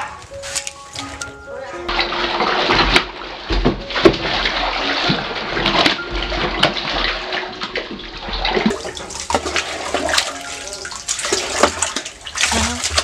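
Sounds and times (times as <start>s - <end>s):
water splashing and sloshing: 0.0s - 13.0s
scrub brush knocking in barrel: 1.9s - 7.1s.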